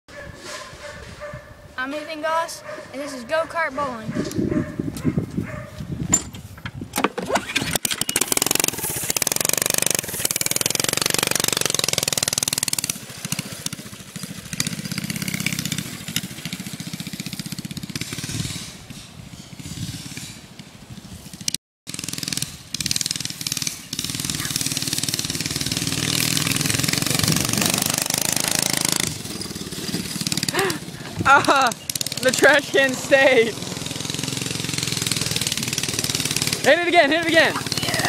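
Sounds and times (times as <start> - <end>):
go-kart engine running: 7.2 - 20.2, 21.9 - 38.0.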